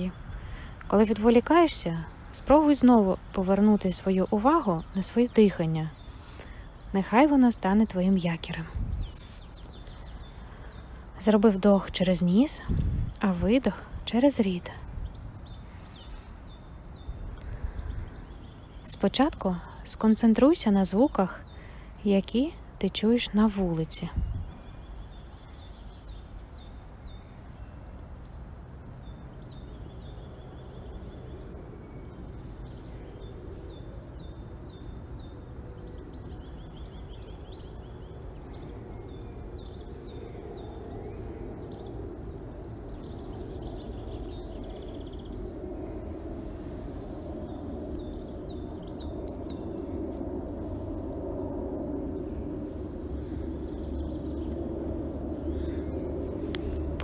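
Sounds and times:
low rumble of traffic: 0:00.0 - 0:57.0
small birds chirping: 0:00.0 - 0:57.0.

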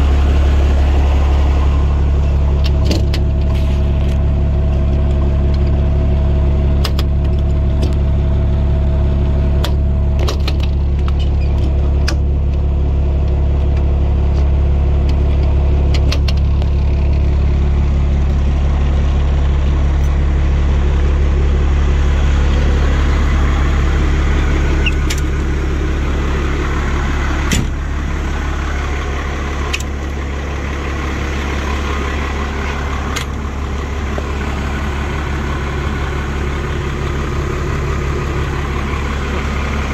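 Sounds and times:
diesel engine idling: 0:00.0 - 0:39.9
sharp clicks and knocks: 0:06.8 - 0:08.0, 0:09.6 - 0:12.6, 0:13.3 - 0:17.3, 0:32.7 - 0:33.4.

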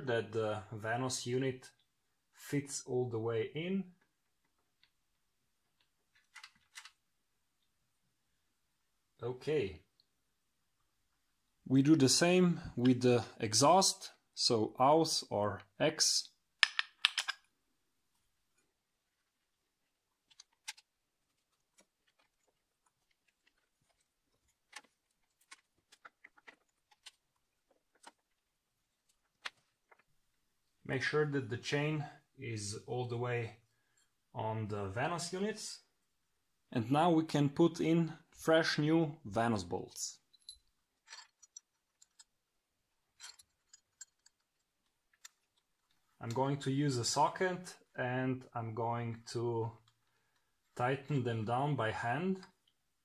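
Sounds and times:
metal parts clicking and clinking: 0:16.6 - 0:17.5, 0:40.3 - 0:42.4, 0:43.1 - 0:45.9
faint metallic clicks and taps: 0:43.2 - 0:46.4.

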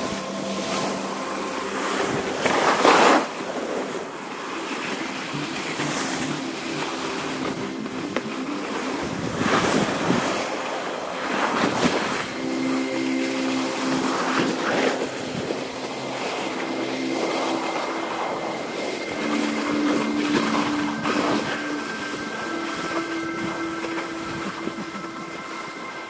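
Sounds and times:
skis sliding over snow: 0:00.0 - 0:26.0
wind on microphone: 0:07.1 - 0:12.5.

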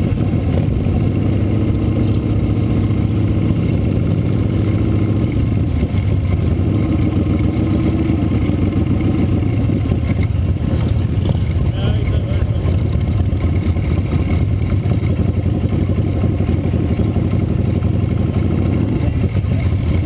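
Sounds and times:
motorcycle engine running: 0:00.0 - 0:20.0
other motorcycles running nearby: 0:00.0 - 0:20.0.

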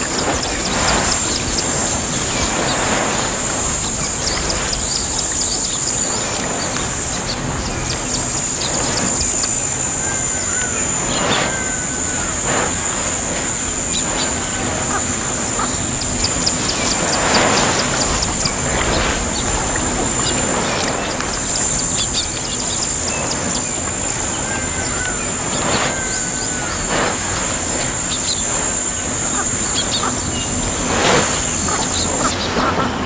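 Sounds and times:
bird chirps: 0:00.0 - 0:32.7
short rushing bursts of noise: 0:00.0 - 0:33.0
steady high drone: 0:00.0 - 0:33.0
whistled calls: 0:00.0 - 0:33.0.

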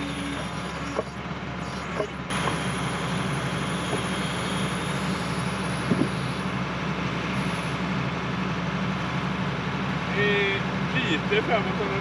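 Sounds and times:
excavator engine running: 0:00.0 - 0:12.0
hydraulic breaker hammering: 0:01.9 - 0:06.3.

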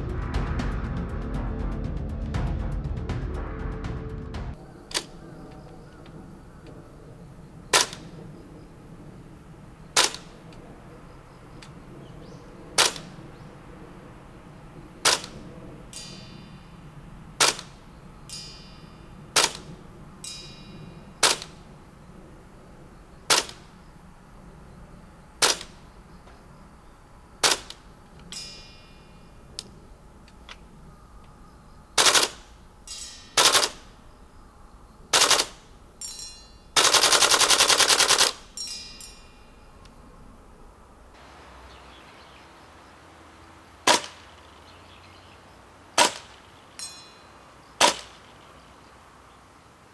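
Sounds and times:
airsoft rifle shots: 0:07.7 - 0:08.2, 0:09.9 - 0:10.4, 0:12.8 - 0:13.2, 0:15.0 - 0:16.4, 0:17.4 - 0:18.6, 0:19.3 - 0:19.8, 0:21.2 - 0:21.7, 0:23.3 - 0:23.8, 0:25.4 - 0:25.9, 0:27.4 - 0:28.8, 0:32.0 - 0:32.6, 0:33.3 - 0:34.0, 0:35.1 - 0:35.8, 0:36.8 - 0:38.6, 0:43.8 - 0:44.3, 0:46.0 - 0:46.5, 0:47.8 - 0:48.3.

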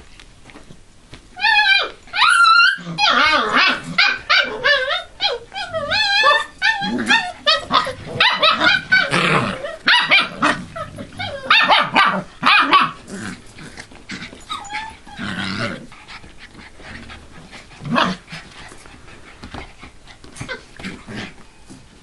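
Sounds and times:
puppies yipping and barking: 0:01.4 - 0:13.1, 0:13.8 - 0:15.5.

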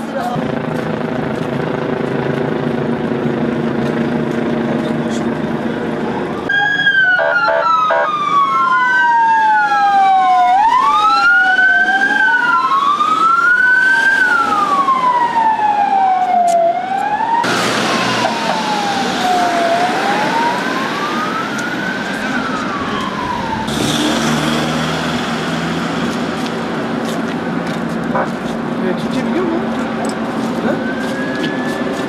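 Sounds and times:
emergency vehicle sirens wailing: 0:00.0 - 0:32.0
loud rushing noise: 0:17.4 - 0:27.6.

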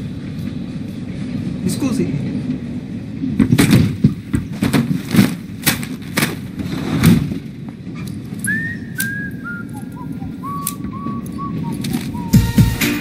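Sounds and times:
train rumbling: 0:00.0 - 0:13.0
whistled tune: 0:08.4 - 0:13.0.

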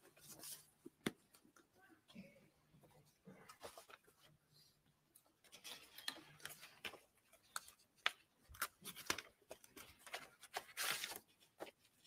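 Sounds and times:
paper rustling: 0:05.4 - 0:12.0.

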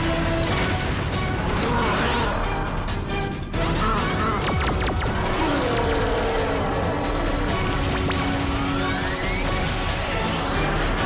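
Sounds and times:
electronic action music: 0:00.0 - 0:11.0.

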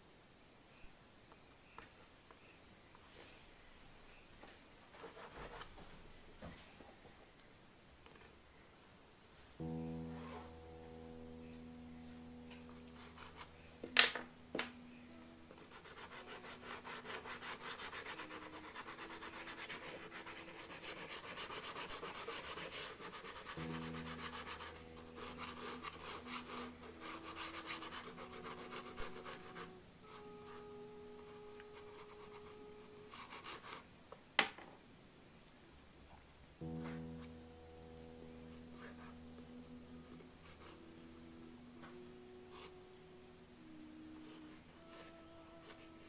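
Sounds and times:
quiet background music: 0:00.0 - 0:46.0
crayon scratching on paper: 0:12.5 - 0:14.2, 0:15.1 - 0:33.8, 0:38.3 - 0:39.8, 0:40.4 - 0:41.1, 0:42.5 - 0:42.8.

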